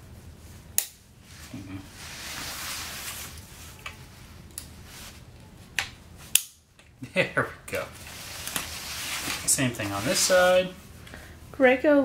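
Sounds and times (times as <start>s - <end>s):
rustling and sliding of parts: 1.2s - 6.4s, 7.7s - 10.9s.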